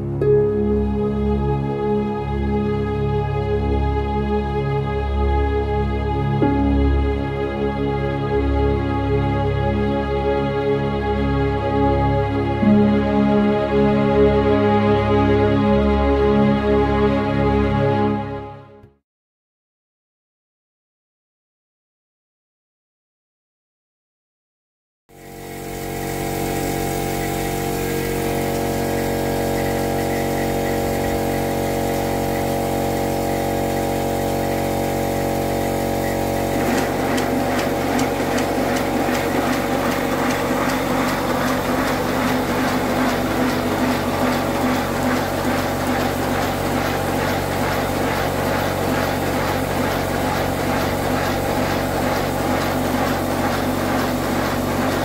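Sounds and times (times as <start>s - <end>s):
steady machine hum: 25.1s - 55.0s
hissing air exhaust beat: 25.2s - 55.0s
rattling rods: 36.2s - 55.0s.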